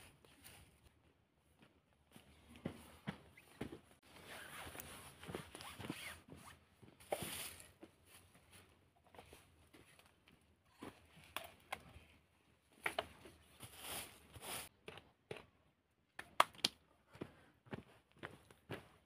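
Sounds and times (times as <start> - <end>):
broom scraping over earth: 7.2 - 7.8, 13.6 - 14.7.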